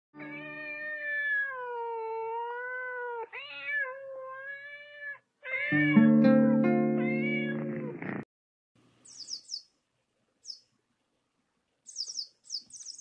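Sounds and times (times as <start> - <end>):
cat meowing: 0.2 - 6.2, 6.9 - 8.2
sustained musical chord: 6.0 - 7.0.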